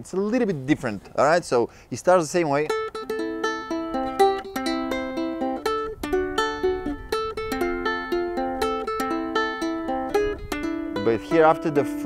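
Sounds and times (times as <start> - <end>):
ukulele fingerpicked arpeggio: 2.5 - 12.0.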